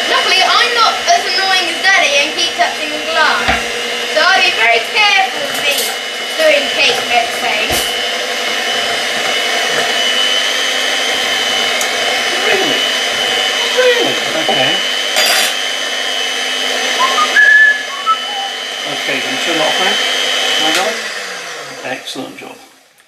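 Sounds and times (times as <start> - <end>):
electric hand mixer whining: 0.0 - 22.4.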